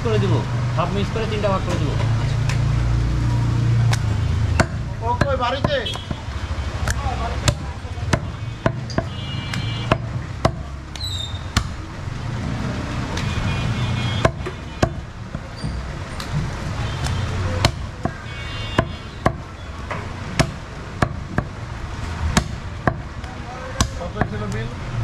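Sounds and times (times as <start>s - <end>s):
low market rumble: 0.0s - 25.0s
meat chopping: 3.9s - 10.7s, 14.2s - 15.4s, 17.0s - 19.5s, 20.3s - 21.6s.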